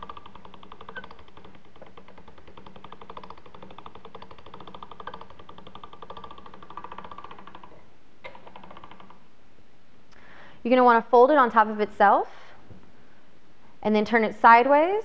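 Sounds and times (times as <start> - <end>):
pasta machine clicking: 0.0 - 9.2.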